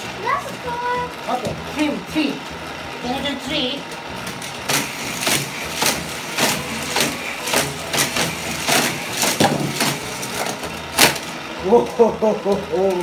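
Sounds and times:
toy track booster hum: 0:00.0 - 0:13.0
toy cars clacking: 0:03.1 - 0:13.0.

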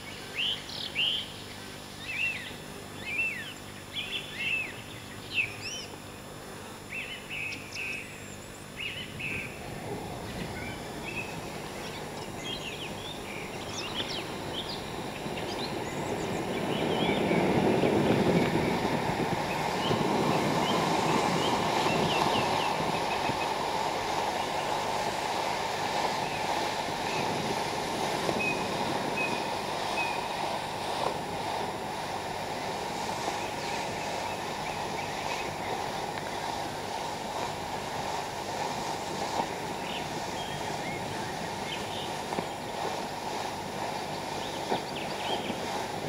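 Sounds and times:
ground firework hissing: 0:09.4 - 0:46.0.

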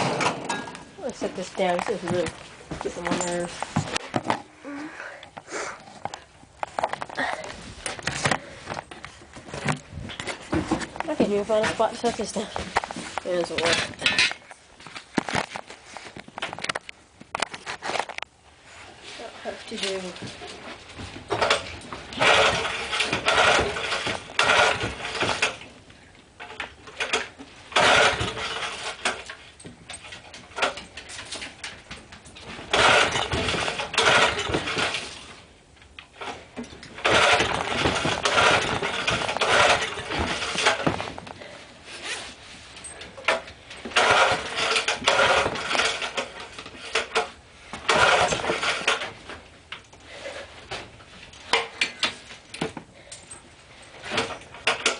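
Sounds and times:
person talking: 0:01.0 - 0:03.6, 0:11.0 - 0:14.2, 0:19.2 - 0:20.3
small engine pull-starting: 0:21.4 - 0:25.6, 0:26.5 - 0:29.3, 0:32.7 - 0:35.3, 0:37.0 - 0:40.9, 0:43.3 - 0:47.3, 0:47.9 - 0:49.2.

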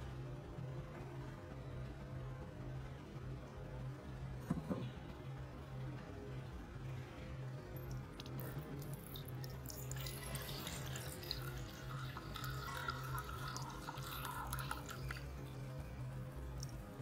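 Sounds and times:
liquid pouring into a ceramic cup: 0:07.9 - 0:17.0.

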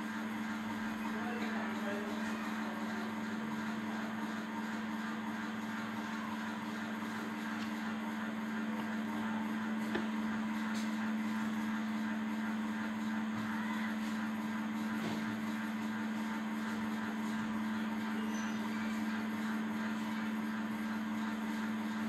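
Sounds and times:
low machine hum: 0:00.0 - 0:22.0.

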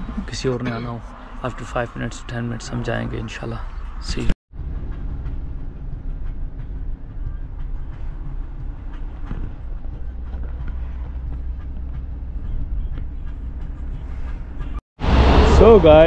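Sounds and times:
road noise: 0:00.0 - 0:16.0
van engine rumble: 0:04.0 - 0:16.0.

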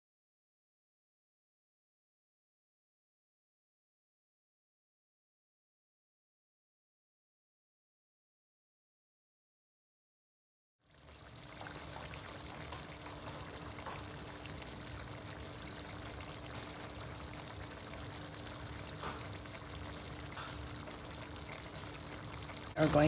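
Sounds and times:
sauce bubbling in a pan: 0:10.8 - 0:23.0.

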